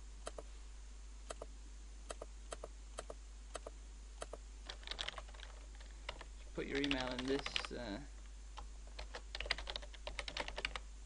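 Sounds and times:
computer mouse clicking: 0.2 - 0.4, 2.1 - 7.7
keyboard typing: 2.1 - 7.8, 8.6 - 10.8.

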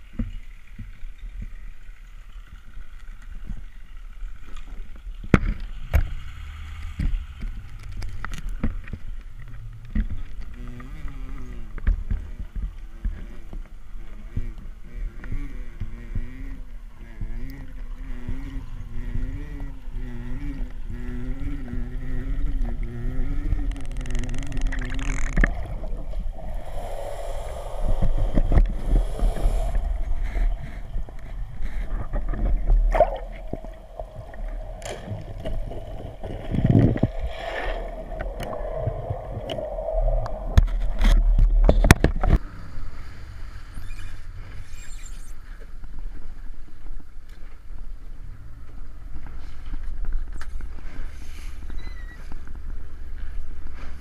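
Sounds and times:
wavering hum: 14.1 - 43.0
water gurgling underwater: 21.8 - 42.4
knocks and splashes: 30.4 - 42.4.

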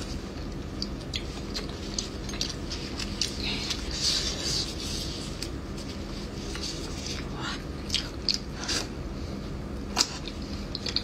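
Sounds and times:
gloved hands rustling food: 0.0 - 7.4
chewing and lip smacks: 0.4 - 3.4, 6.5 - 8.5, 9.9 - 11.0.

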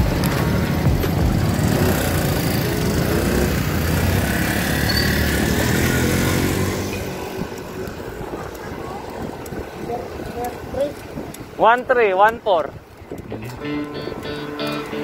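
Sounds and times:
motor engine running close by: 0.0 - 8.5
street traffic: 0.0 - 15.0.

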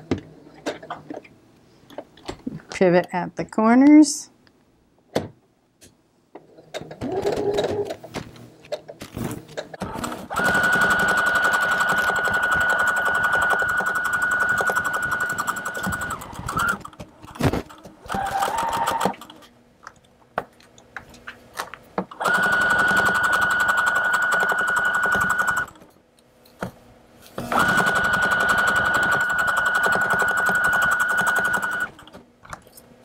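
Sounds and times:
sewing machine stitching: 6.8 - 8.0, 9.8 - 19.4, 22.2 - 25.8, 27.4 - 32.1.

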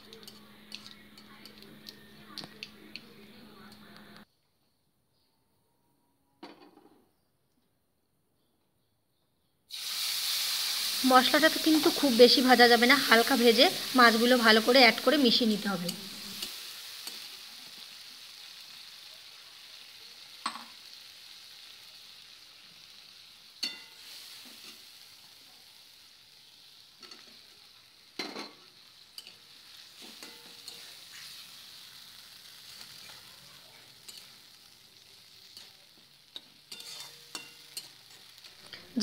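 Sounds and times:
paste sizzling in oil: 9.7 - 39.0.

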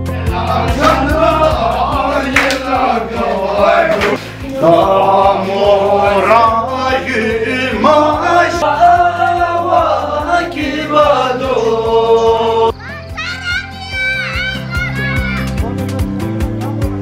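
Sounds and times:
group singing in unison: 0.0 - 12.7.

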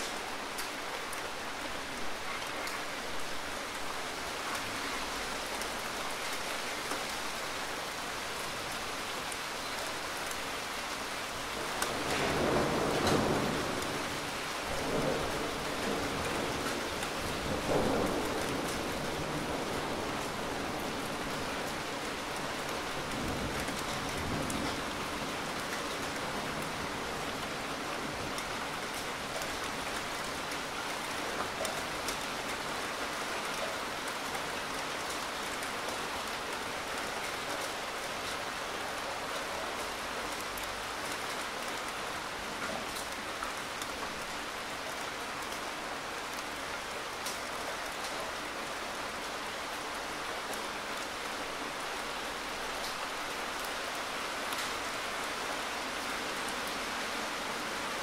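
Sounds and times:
heavy rain: 0.0 - 58.0
thunder rumbling: 11.9 - 21.0.

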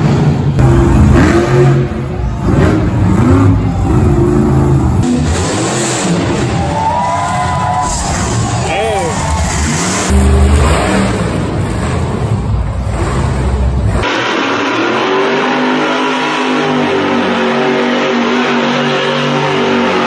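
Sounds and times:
deep engine rumble: 0.0 - 14.3
truck engines revving: 0.0 - 20.0.

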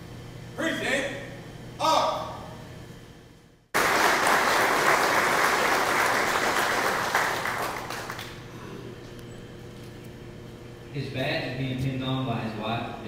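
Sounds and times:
audience applauding: 3.8 - 8.4.

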